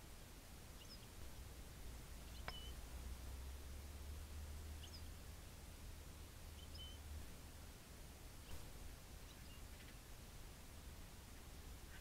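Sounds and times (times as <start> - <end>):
small songbird call notes: 0.7 - 1.4, 2.2 - 3.0, 4.6 - 5.3, 6.4 - 7.2, 8.4 - 10.2.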